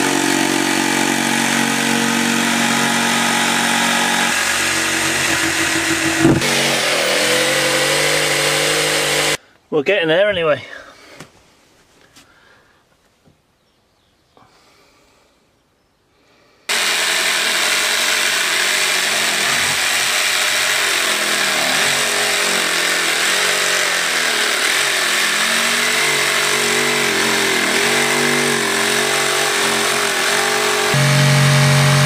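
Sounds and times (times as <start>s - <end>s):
jigsaw sawing: 0.0s - 9.4s, 16.7s - 32.0s.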